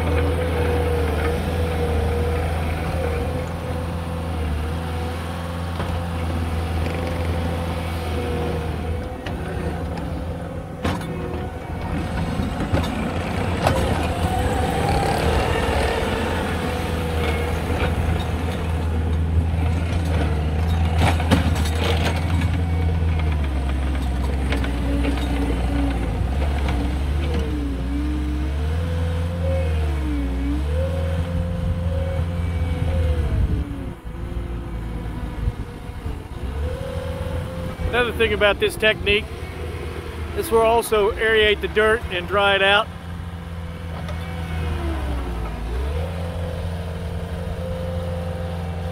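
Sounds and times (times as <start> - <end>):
diesel engine under load: 0.0 - 48.9
knocks and clatter: 10.8 - 14.4, 17.2 - 27.5.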